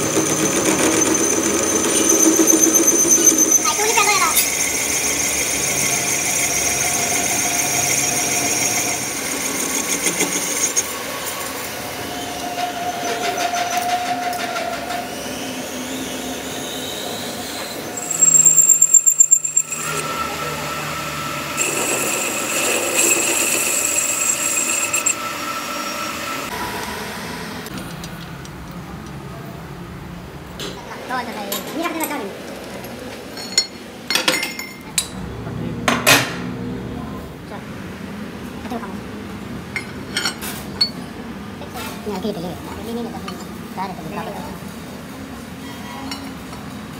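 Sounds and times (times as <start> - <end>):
tool bit squealing on steel: 0.0 - 10.9, 12.1 - 26.5
metal lathe running: 0.0 - 14.0, 17.6 - 27.7.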